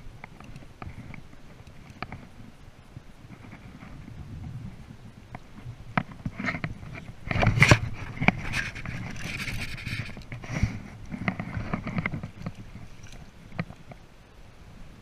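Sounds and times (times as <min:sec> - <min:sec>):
knocks and clicks of fishing gear: 0:05.3 - 0:10.5, 0:11.1 - 0:14.0
water splashing and sloshing: 0:05.6 - 0:14.2.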